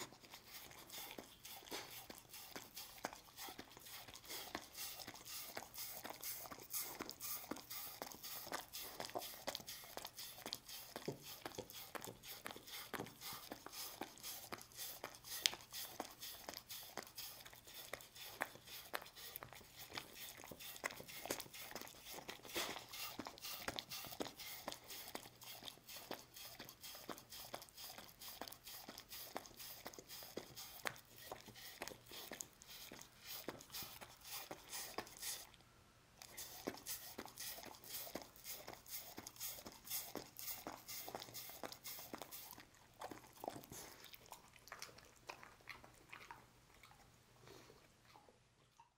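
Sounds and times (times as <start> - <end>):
dog licking: 0.0 - 35.6, 36.2 - 48.4.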